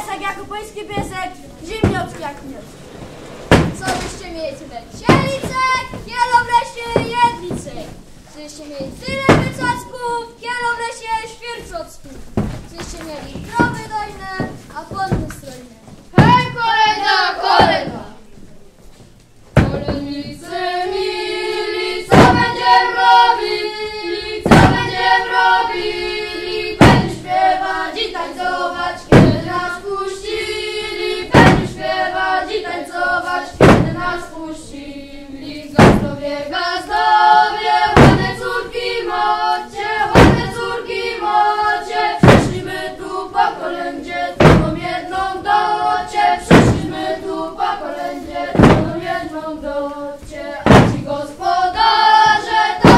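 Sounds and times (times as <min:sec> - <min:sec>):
children singing a carol: 0:00.0 - 0:08.0, 0:08.7 - 0:11.7, 0:16.2 - 0:18.3, 0:19.6 - 0:52.9
thuds on wooden stage floor: 0:00.9 - 0:02.3, 0:03.4 - 0:08.0, 0:08.8 - 0:09.9, 0:11.6 - 0:16.7, 0:19.6 - 0:20.4, 0:22.1 - 0:22.8, 0:24.4 - 0:25.2, 0:26.8 - 0:27.5, 0:29.0 - 0:29.8, 0:31.3 - 0:32.0, 0:33.5 - 0:34.3, 0:35.6 - 0:36.2, 0:37.2 - 0:38.6, 0:40.0 - 0:40.8, 0:42.2 - 0:42.8, 0:44.4 - 0:45.1, 0:46.4 - 0:47.2, 0:48.2 - 0:49.3, 0:50.2 - 0:52.9.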